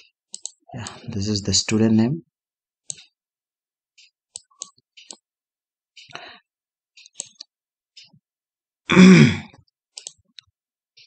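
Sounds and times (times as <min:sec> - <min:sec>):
mouse and keyboard clicks: 0:00.0 - 0:00.6, 0:02.8 - 0:03.2, 0:04.0 - 0:05.3, 0:07.0 - 0:08.2, 0:09.9 - 0:10.5
person wordless vocal sound: 0:08.9 - 0:09.6.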